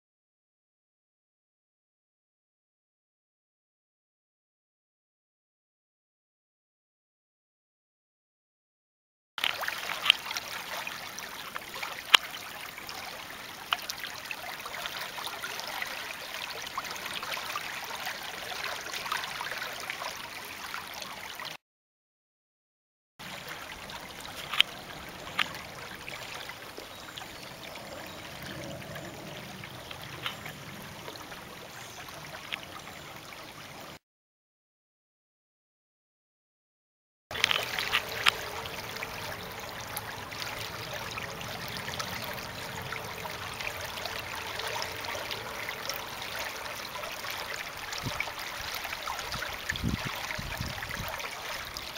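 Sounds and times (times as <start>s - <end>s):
water rushing and trickling: 9.4s - 21.6s, 23.2s - 34.0s, 37.3s - 51.9s
sharp clicks and pops: 24.4s - 24.7s.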